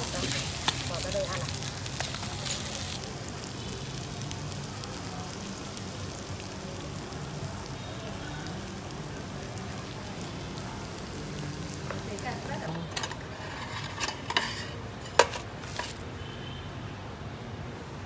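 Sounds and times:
fish sizzling in a frying pan: 0.0 - 16.1.

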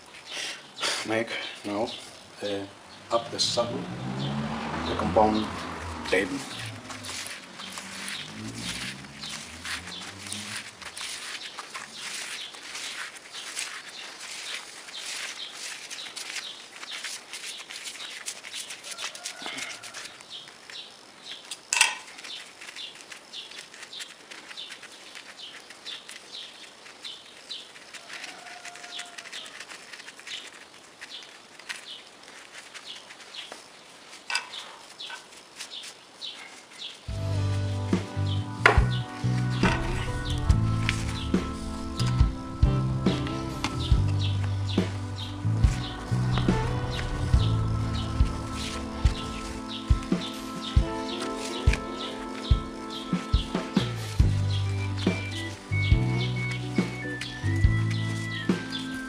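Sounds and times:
music: 37.1 - 59.0.

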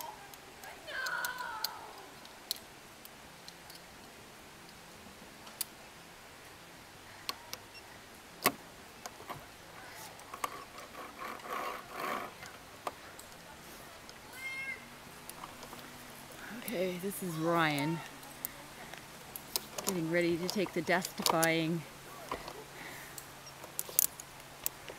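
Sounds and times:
carabiners clicking on steel cable: 19.3 - 24.9.

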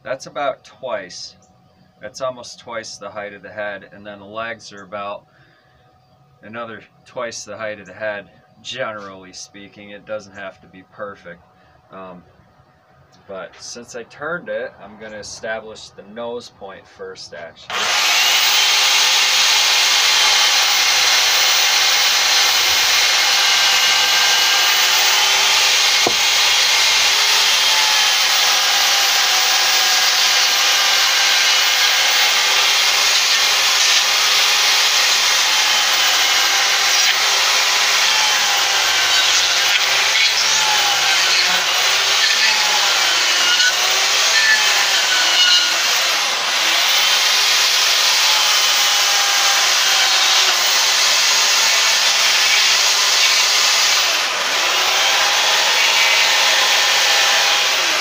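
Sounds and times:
electric chainsaw cutting wood: 17.7 - 58.0.

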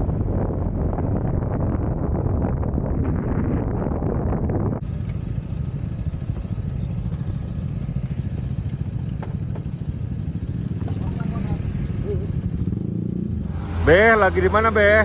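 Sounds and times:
wind noise on microphone: 0.0 - 6.6
scooter engine and road rumble: 0.0 - 15.0.

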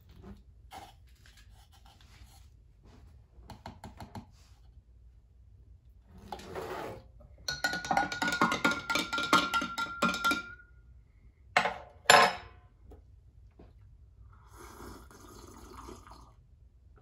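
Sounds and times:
spoon clinking in a glass: 7.5 - 10.7
drinking from a glass: 14.5 - 16.4.

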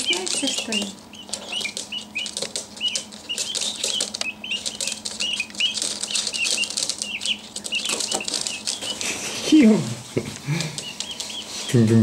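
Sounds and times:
feet tapping on hard floor: 0.0 - 9.2
chicks peeping: 0.0 - 12.0.

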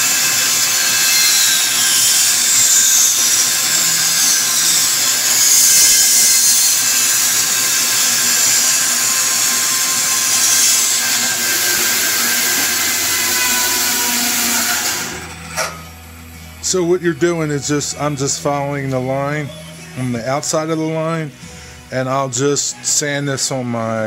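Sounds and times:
bandsaw cutting wood: 0.0 - 16.0.

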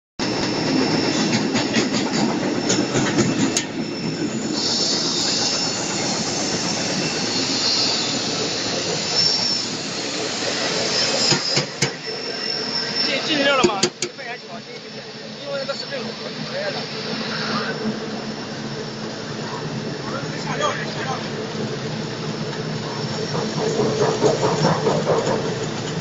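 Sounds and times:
high metallic squeal: 0.2 - 13.8.

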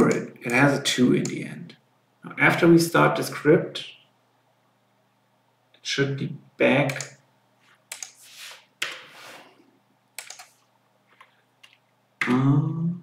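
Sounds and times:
keyboard keystrokes clicking: 10.2 - 10.6
man's voice: 12.2 - 13.0.

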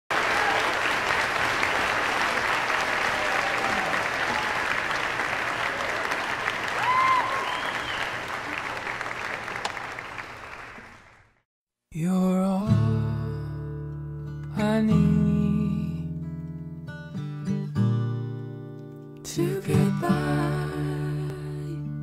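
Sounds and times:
audience applauding: 0.1 - 11.4
short whoop: 3.1 - 4.6, 6.7 - 8.0.

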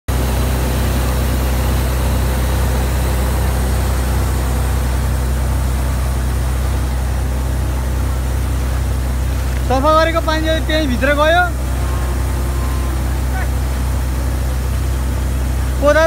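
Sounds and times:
water pump engine droning: 0.1 - 16.0
water gushing and splashing: 3.6 - 15.9.

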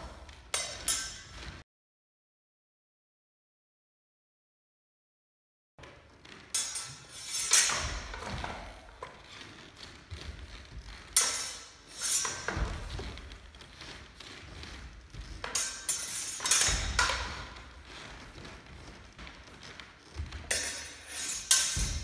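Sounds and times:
blades and bucklers clashing: 0.4 - 1.6, 6.4 - 22.0.

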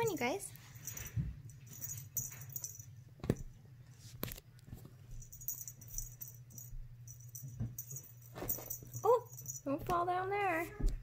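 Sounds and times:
steady low hum: 0.0 - 11.0
kittens scuffling on mattress: 7.6 - 11.0.

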